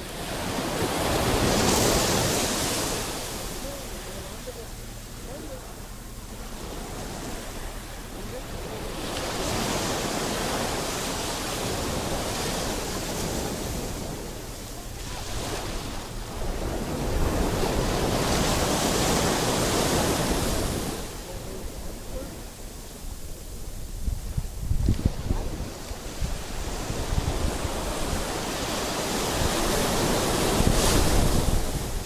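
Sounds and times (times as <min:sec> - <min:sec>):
surf washing onto beach: 0:00.0 - 0:32.0.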